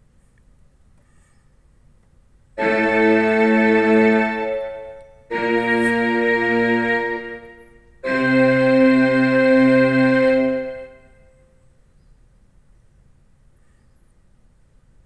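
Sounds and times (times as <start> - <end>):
keyboard playing held chords: 2.6 - 11.4.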